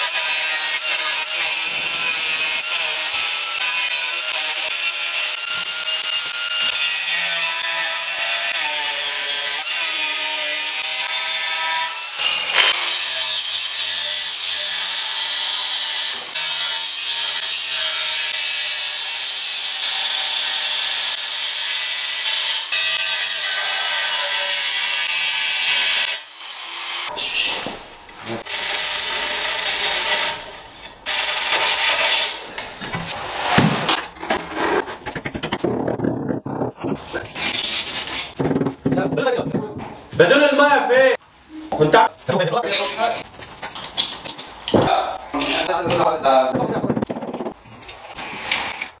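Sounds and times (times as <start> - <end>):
angle grinder grinding tile: 28.3 - 39.3.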